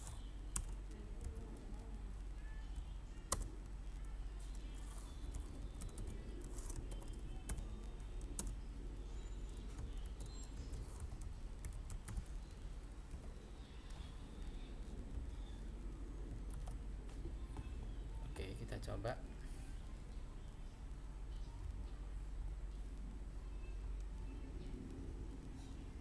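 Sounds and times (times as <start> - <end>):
typing on computer keyboard: 0.5 - 1.8, 5.2 - 8.7, 9.4 - 15.6.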